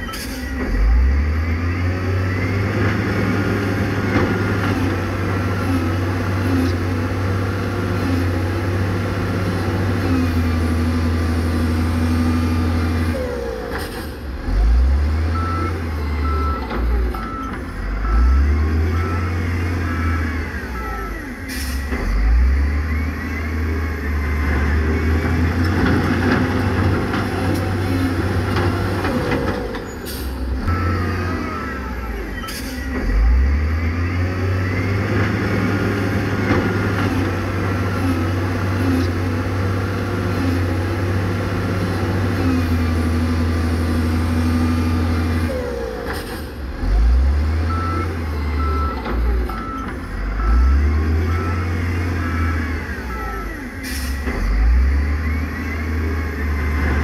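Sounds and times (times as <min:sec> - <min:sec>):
reversing beeper: 0:00.0 - 0:06.4, 0:14.4 - 0:25.7, 0:29.8 - 0:37.0, 0:43.3 - 0:57.0
diesel truck engines running: 0:00.0 - 0:57.0
air brake hissing: 0:21.5 - 0:21.9, 0:53.8 - 0:54.3.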